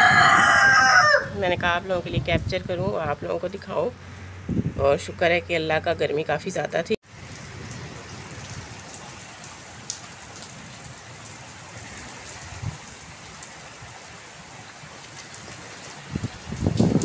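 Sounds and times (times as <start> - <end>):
heavy rain on concrete: 7.0 - 17.0.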